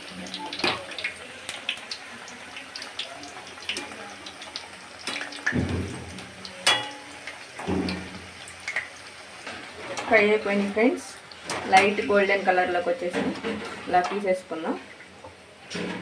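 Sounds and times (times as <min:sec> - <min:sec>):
frying oil sizzling and crackling: 0:00.0 - 0:16.0
wire skimmer clinking on pan: 0:06.6 - 0:07.9.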